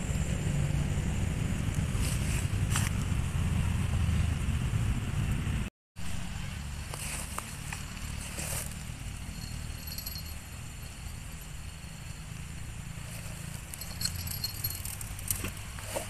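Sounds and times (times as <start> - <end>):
insect chirping: 6.0 - 16.0.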